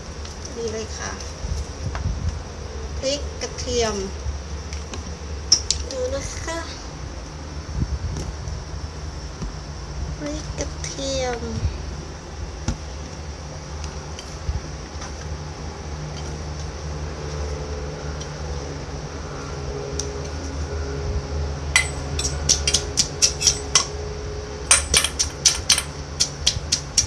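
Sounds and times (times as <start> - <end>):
steady low hum: 0.0 - 27.0
pestle pounding in mortar: 24.7 - 27.0.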